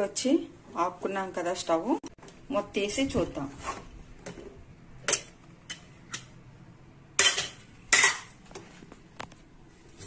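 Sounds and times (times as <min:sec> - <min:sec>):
metallic lid clanks: 0:07.2 - 0:08.4.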